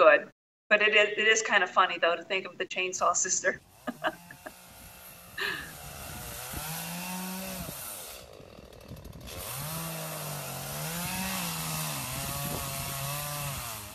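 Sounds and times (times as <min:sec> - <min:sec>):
chainsaw cutting branches: 0:03.6 - 0:13.9.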